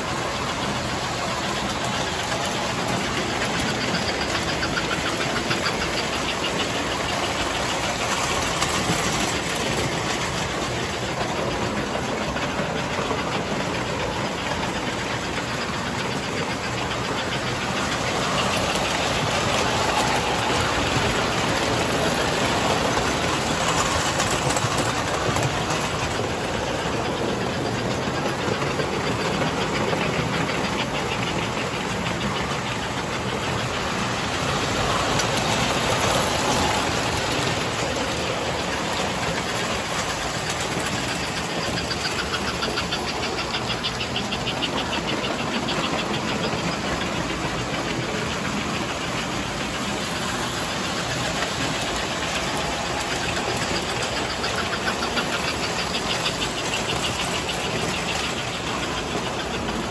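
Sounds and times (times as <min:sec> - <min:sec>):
model train motors whirring: 0:00.0 - 0:59.9
rhythmic clicking of wheels: 0:00.0 - 0:59.9.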